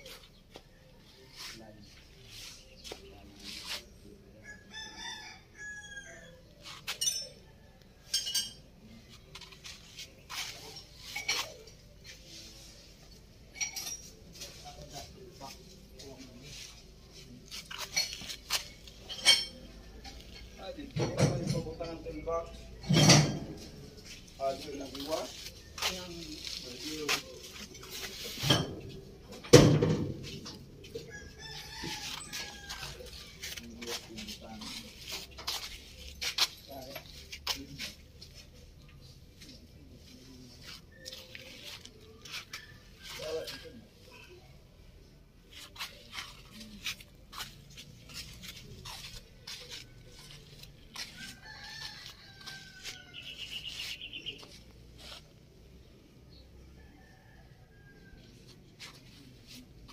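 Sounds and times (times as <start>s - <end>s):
rooster crowing: 4.4s - 6.4s, 31.0s - 33.2s
rooster crowing faintly: 30.9s - 34.8s, 48.9s - 55.2s
taps and scuffs: 45.6s - 55.4s.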